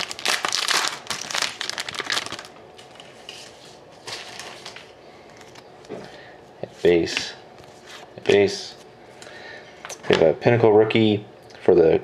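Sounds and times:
foil wrapper crinkling: 0.0 - 5.6.

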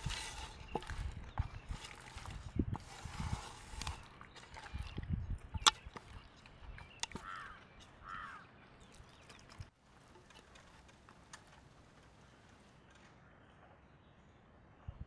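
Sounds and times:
hands squelching meat in marinade: 0.0 - 7.7.

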